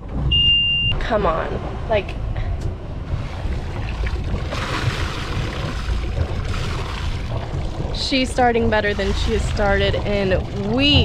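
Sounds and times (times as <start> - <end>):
boat diesel engine idling: 1.0 - 11.0
rushing splashy water: 3.0 - 11.0.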